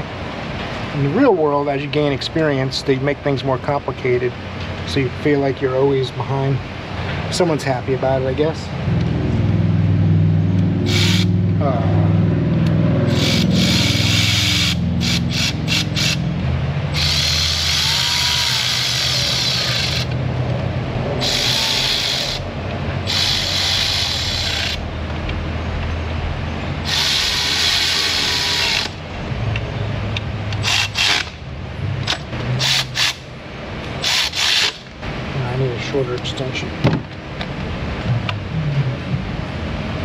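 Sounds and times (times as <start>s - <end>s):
steady low hum: 6.3s - 34.0s
power ratchet spinning bolts: 10.8s - 11.3s, 13.1s - 20.2s, 21.2s - 24.8s, 26.8s - 29.0s, 30.6s - 31.4s, 32.0s - 33.2s, 34.0s - 34.8s.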